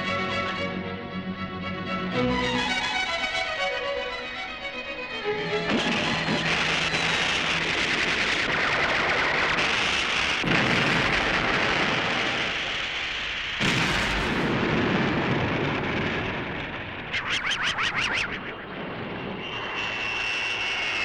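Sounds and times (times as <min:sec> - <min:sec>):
missile blasts: 0:05.7 - 0:17.7.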